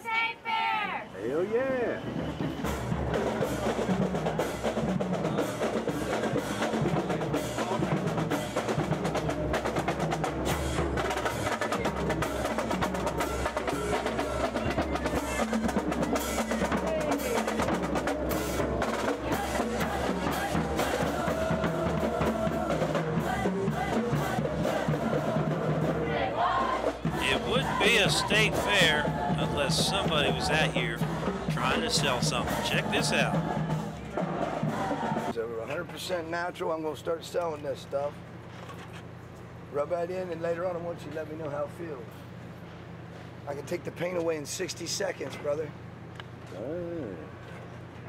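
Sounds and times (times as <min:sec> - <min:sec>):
snare drumline cadence: 0:24.2 - 0:35.3.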